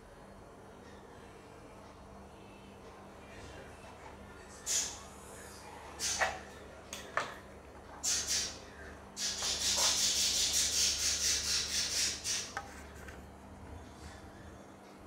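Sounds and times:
sandwich rustling and scraping: 12.4 - 13.3.

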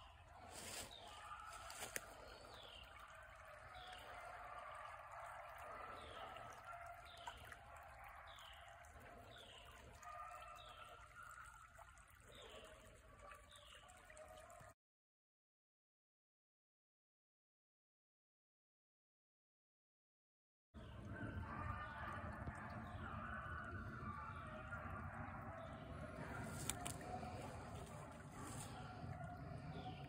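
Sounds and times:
creek trickling: 0.0 - 14.7, 20.8 - 30.0.

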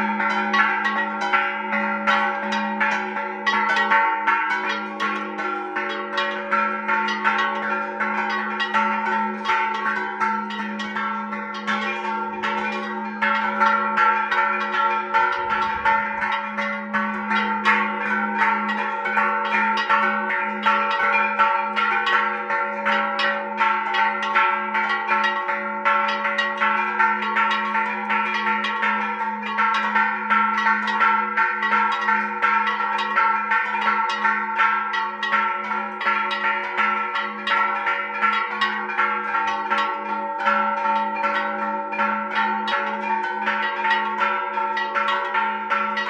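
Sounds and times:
church bells pealing: 0.0 - 46.0
deep bell ringing tone: 4.8 - 27.7.

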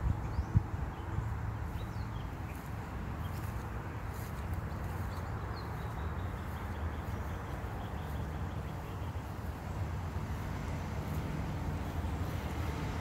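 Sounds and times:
outdoor background rumble: 0.0 - 13.0.

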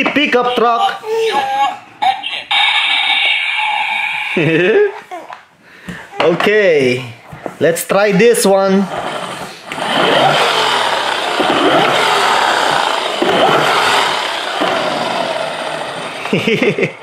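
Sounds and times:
toy truck whirring on wood floor: 8.8 - 17.0.

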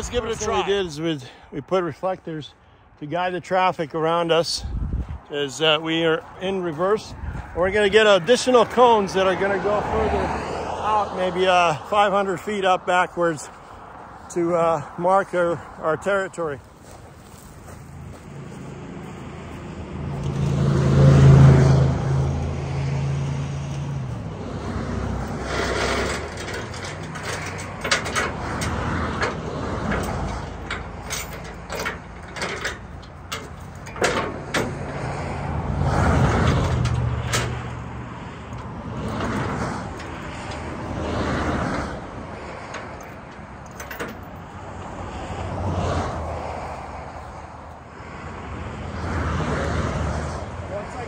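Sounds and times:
highway traffic passing: 0.0 - 51.0
heavy truck engine hum: 4.4 - 51.0
metal chains clinking: 25.2 - 34.7, 42.6 - 44.6.

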